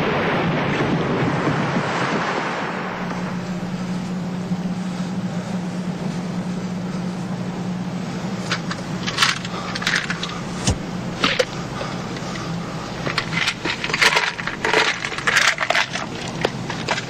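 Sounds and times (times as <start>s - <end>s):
low engine hum: 0.0s - 17.0s
clinks and rattles: 8.4s - 17.0s.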